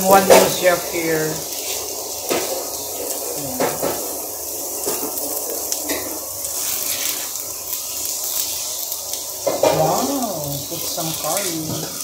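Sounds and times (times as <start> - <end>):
food sizzling in oil: 0.0 - 12.0.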